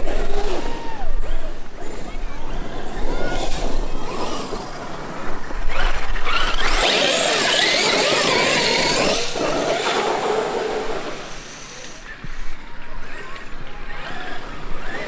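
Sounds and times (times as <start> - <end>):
tyres churning on dirt: 0.0 - 15.0
electric motor whining: 2.4 - 12.0.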